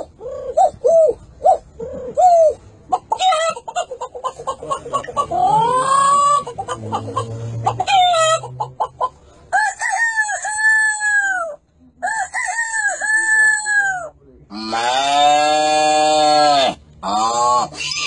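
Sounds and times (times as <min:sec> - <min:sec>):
chicken clucking: 0:00.0 - 0:12.2
rooster crowing: 0:09.5 - 0:14.1.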